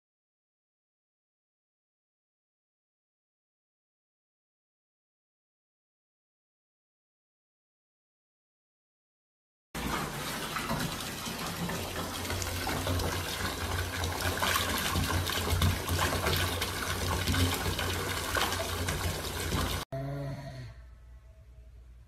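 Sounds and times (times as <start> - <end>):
tap water gushing into bathtub: 9.8 - 19.9.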